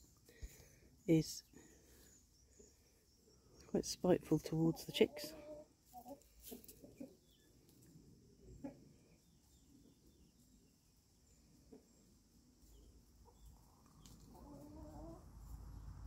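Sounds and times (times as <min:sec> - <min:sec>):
faint hen clucks: 0:04.6 - 0:07.8, 0:08.5 - 0:09.0, 0:12.6 - 0:15.5.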